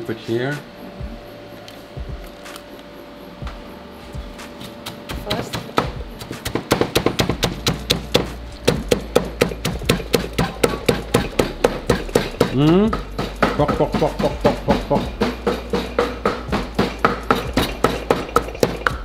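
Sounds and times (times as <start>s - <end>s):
pestle pounding in clay mortar: 4.6s - 19.0s.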